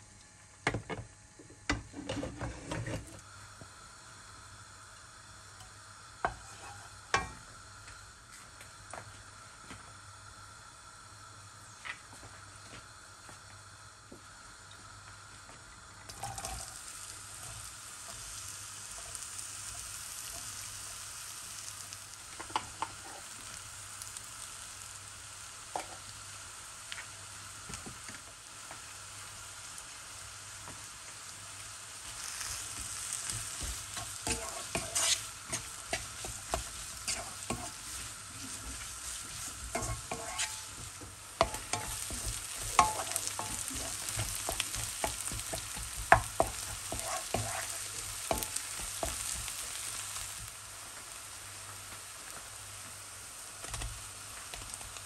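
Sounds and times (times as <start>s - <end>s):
food sizzling in a pan: 0.0s - 55.0s
spatula scraping and clicking on pan: 6.2s - 7.4s, 33.2s - 49.6s.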